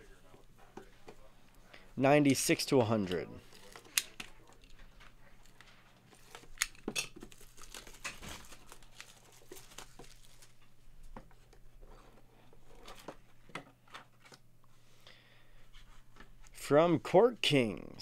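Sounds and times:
plastic wrap crinkling and tearing: 0:05.3 - 0:10.6.

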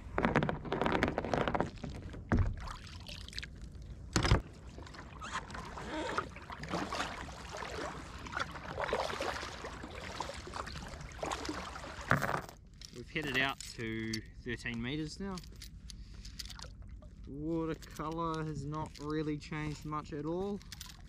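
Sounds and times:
paddle strokes splashing water: 0:01.8 - 0:03.6, 0:04.4 - 0:12.2
gear rattling: 0:17.7 - 0:21.0.

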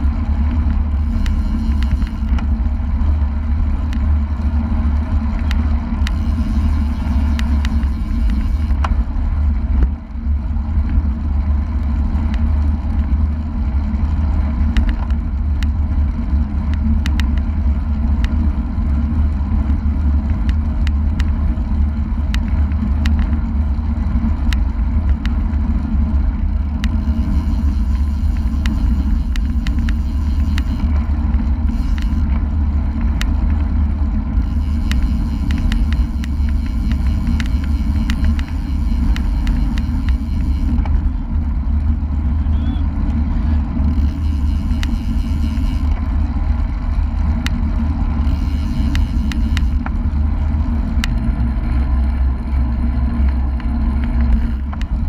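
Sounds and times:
small clicks and rattles: 0:00.0 - 0:42.1, 0:43.0 - 0:55.0
road and tyre noise: 0:00.0 - 0:55.0
wind rushing over camera: 0:00.0 - 0:55.0.

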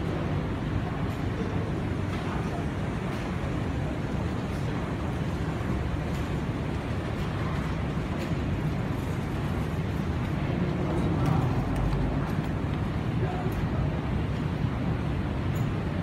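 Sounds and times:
airport terminal rumble: 0:00.0 - 0:16.0.

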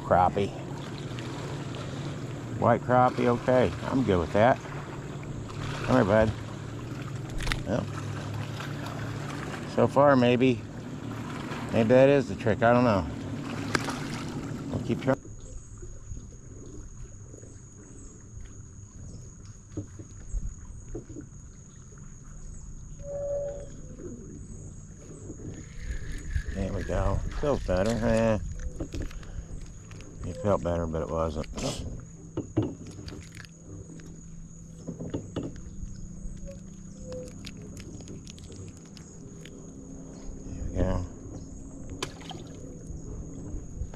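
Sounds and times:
low steady hum: 0:00.0 - 0:43.9
water lapping against boat hull: 0:00.0 - 0:43.9
low wind rumble: 0:20.1 - 0:43.9
faint high whine: 0:21.5 - 0:28.7
high-pitched insect drone: 0:22.9 - 0:28.8, 0:29.6 - 0:32.5
held tone: 0:23.0 - 0:23.9.

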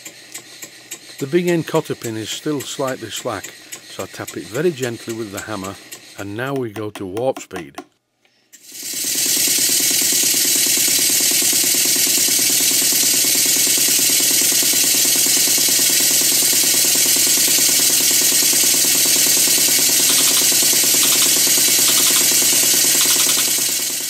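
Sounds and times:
model steam engine chuffing: 0:00.0 - 0:06.6, 0:08.6 - 0:24.0.

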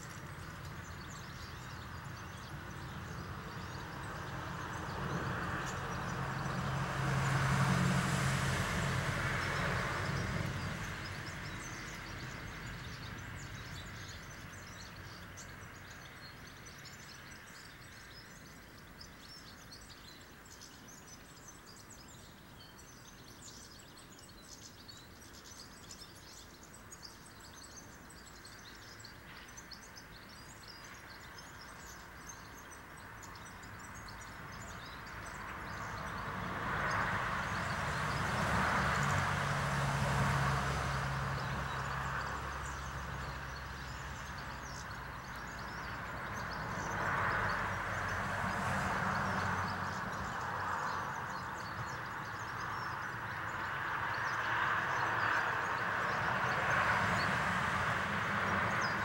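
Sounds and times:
small birds chirping: 0:00.0 - 0:07.6, 0:08.3 - 0:59.0
passing vehicle rumbling: 0:00.0 - 0:18.4, 0:30.2 - 0:59.0.

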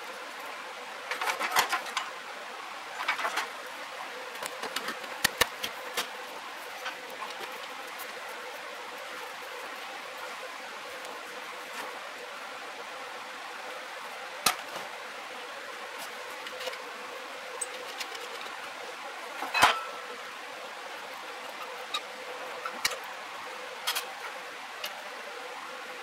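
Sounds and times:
steady low hiss: 0:00.0 - 0:26.0
metal tools clinking: 0:19.5 - 0:20.0.

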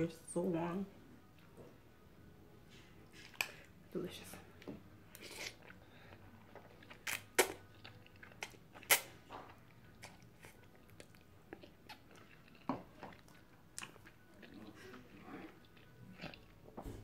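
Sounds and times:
person slurping and chewing noodles: 0:05.1 - 0:16.6.

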